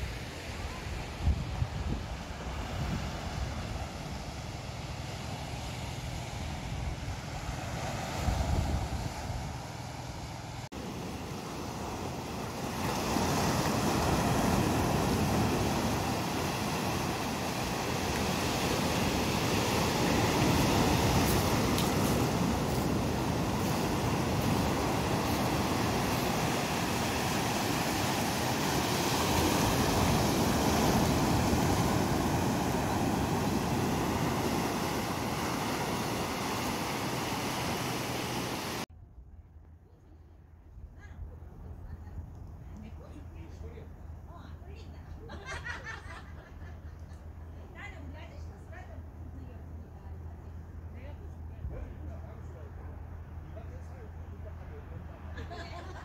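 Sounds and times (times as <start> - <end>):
wind rumble on microphone: 0.0 - 44.8
sea waves breaking on pebbly shore: 10.8 - 38.8.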